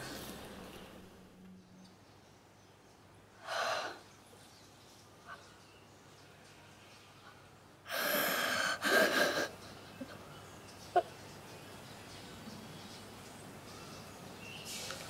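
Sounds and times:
person gasping breaths: 3.4s - 4.0s, 7.9s - 9.5s.

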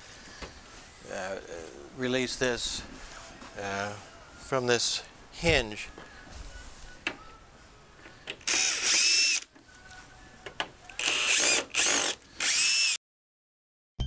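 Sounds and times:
cordless drill whirring: 8.4s - 9.5s, 11.0s - 13.0s.

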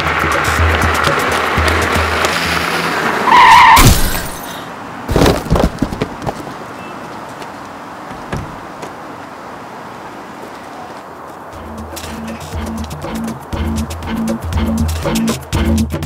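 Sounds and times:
background music: 0.0s - 3.5s, 11.6s - 16.0s
tyre skid screech effect: 0.2s - 4.7s
quiet knocks: 7.4s - 9.0s.

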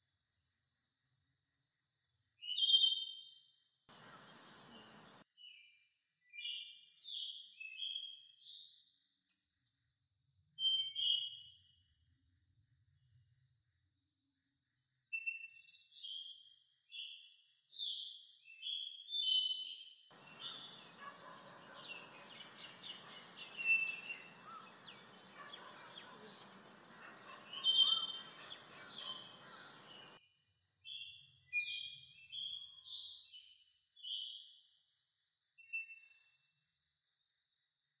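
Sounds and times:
low outdoor hiss: 3.9s - 5.2s, 20.2s - 30.2s
bird whistled calls: 20.2s - 30.2s.

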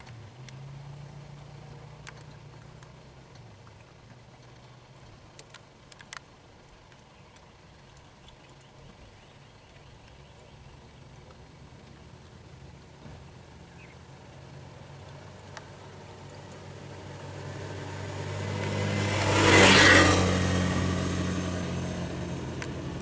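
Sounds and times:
motorcycle engine passing: 12.6s - 23.0s.

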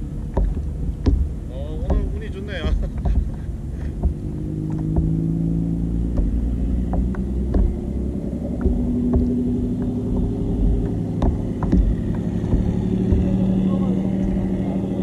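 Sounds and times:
boat engine droning: 0.0s - 15.0s
wind rumble on microphone: 0.0s - 15.0s.

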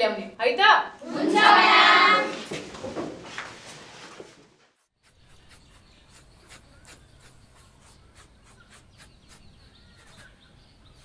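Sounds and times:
pencil scratching on paper: 4.8s - 11.0s.

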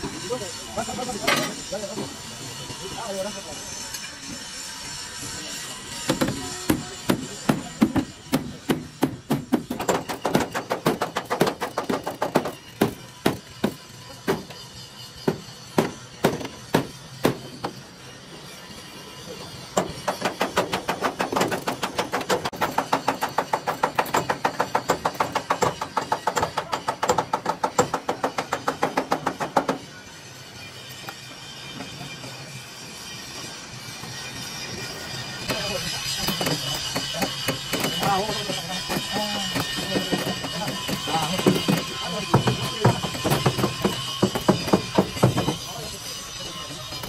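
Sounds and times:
hammer blows: 5.9s - 17.8s, 34.3s - 45.8s.

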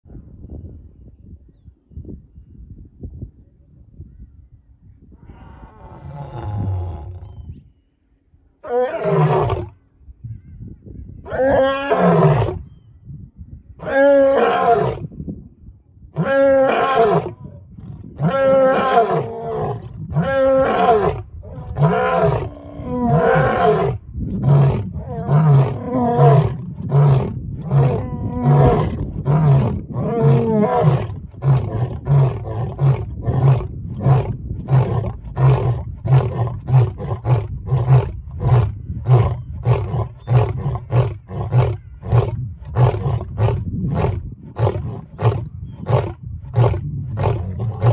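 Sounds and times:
lions grunting roars: 16.2s - 47.9s
lions roaring: 16.2s - 47.9s.

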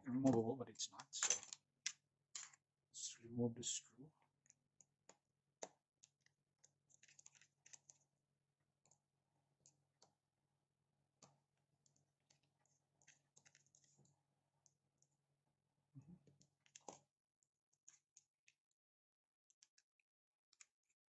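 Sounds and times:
small clicks and taps: 4.4s - 8.0s, 11.2s - 15.2s, 16.2s - 17.1s, 19.5s - 21.0s.

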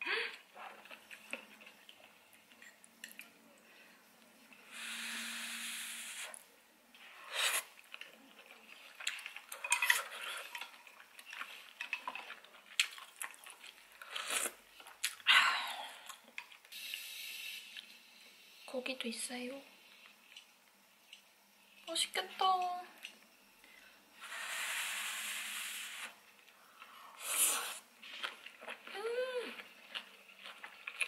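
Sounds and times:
steady hiss: 2.1s - 7.9s, 13.7s - 30.4s
chopsticks and bowl clinking on pot: 9.1s - 13.2s.

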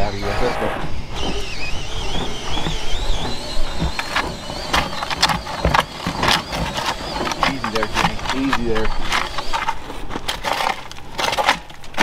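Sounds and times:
compressed air whistling past tyre: 0.0s - 5.3s.

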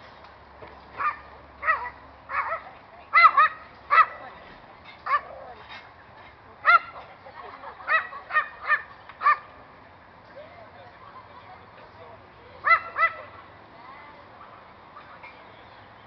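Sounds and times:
dog yipping: 1.0s - 4.2s, 7.9s - 9.5s.

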